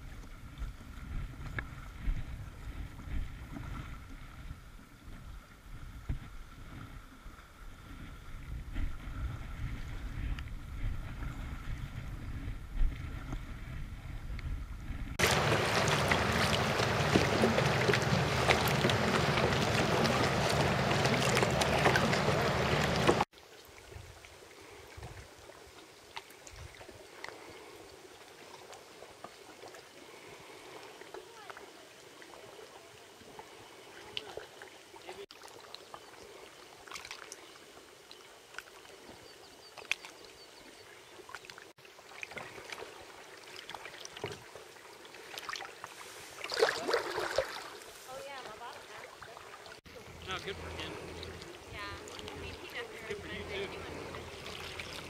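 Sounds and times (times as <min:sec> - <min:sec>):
wind rumbling on microphone: 0:00.0 - 0:25.4
paddle splashing: 0:00.0 - 0:55.0
water moving past hull: 0:00.0 - 0:55.0.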